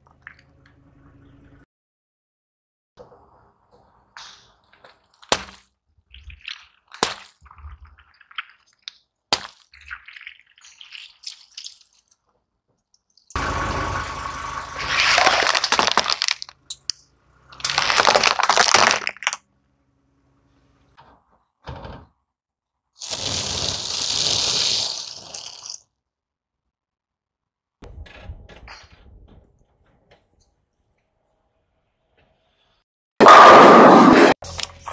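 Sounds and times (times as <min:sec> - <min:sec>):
tyre crushing objects: 0:14.9 - 0:16.6, 0:17.6 - 0:19.4
plastic cracking and crunching: 0:15.0 - 0:16.9, 0:17.6 - 0:19.4.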